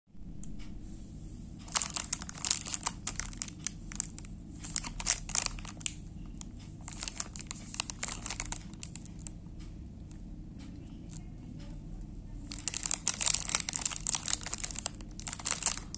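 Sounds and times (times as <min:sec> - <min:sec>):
plastic wrapper crinkling: 0:01.6 - 0:09.4, 0:12.4 - 0:15.9.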